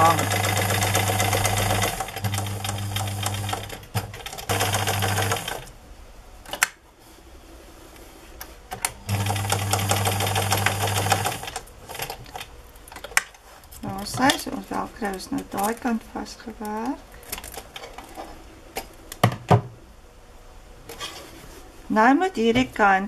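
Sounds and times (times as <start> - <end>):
sewing machine stitching: 0.0 - 5.7, 9.1 - 12.4.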